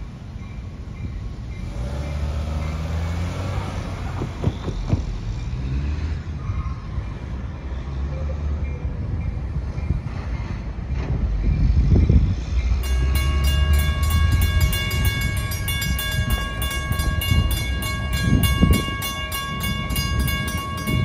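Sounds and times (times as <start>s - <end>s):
diesel locomotive rumble: 0.0s - 21.0s
crossing bell dinging: 12.6s - 21.0s.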